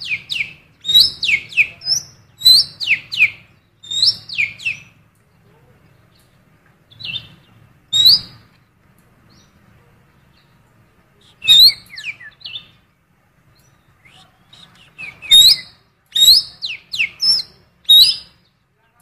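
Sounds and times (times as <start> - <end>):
bird singing chirping whistles: 0.0 - 5.0, 6.9 - 8.5, 11.2 - 12.8, 13.6 - 18.5.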